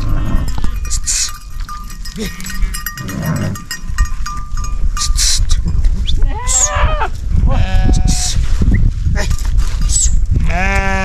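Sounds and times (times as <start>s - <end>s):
sheep bells clinking: 0.0s - 6.5s, 9.0s - 10.8s
flock rustle and rumble: 0.0s - 11.0s
sheep bleating: 10.4s - 11.0s.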